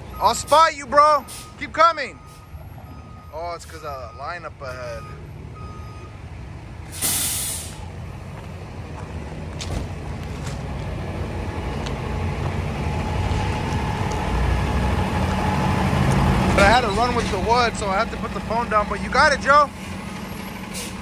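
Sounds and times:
diesel truck engine running: 0.0 - 21.0
air brake hiss: 6.9 - 7.8, 20.7 - 21.0.

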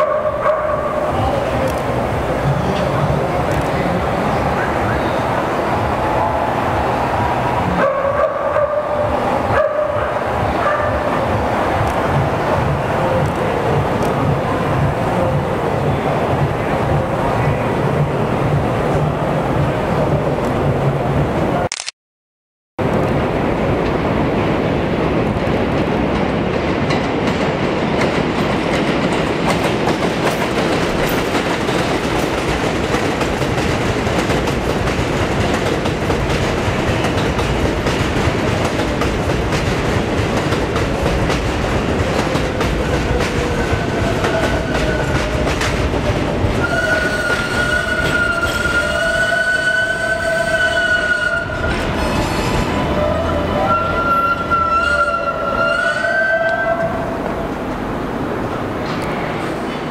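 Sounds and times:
train wheels clattering on rails: 0.0 - 21.3, 22.9 - 55.5
train brakes squealing: 46.6 - 56.9.

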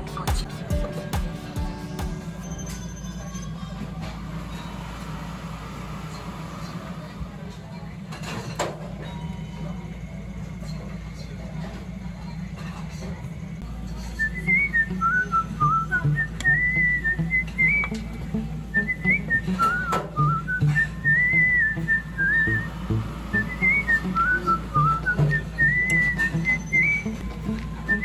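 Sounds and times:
low steady beat: 0.0 - 2.4, 14.9 - 26.4
whistled melody: 0.0 - 3.9, 14.2 - 28.0.

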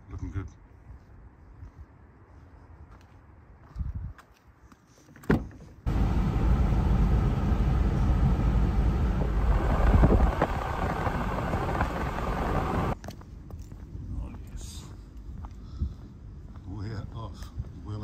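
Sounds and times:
road and engine noise in cab: 5.4 - 13.0.

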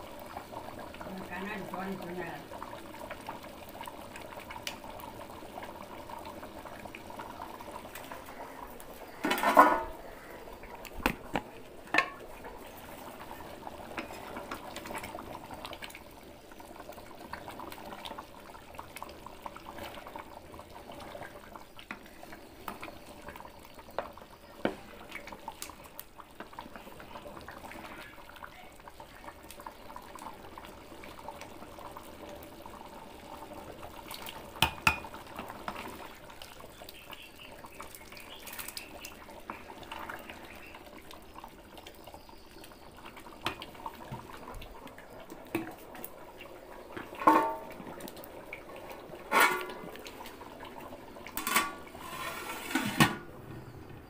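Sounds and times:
curry bubbling in a pot: 0.0 - 53.9
ladle knocking against pot: 11.3 - 12.2.

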